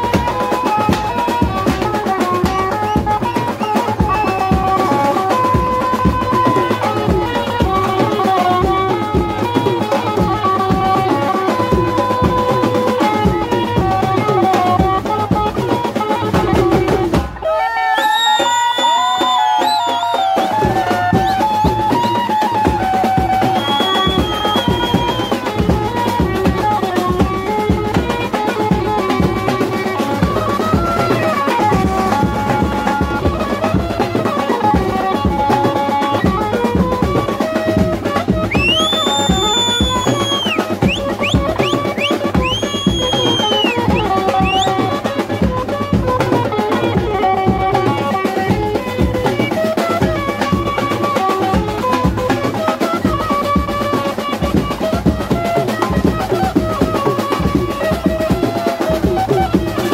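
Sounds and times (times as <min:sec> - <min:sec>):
band playing a melody: 0:00.0 - 0:59.9
drum beats: 0:00.0 - 0:59.9
shrill whistle: 0:03.6 - 0:04.6, 0:17.6 - 0:21.5, 0:23.4 - 0:25.5, 0:38.4 - 0:44.8.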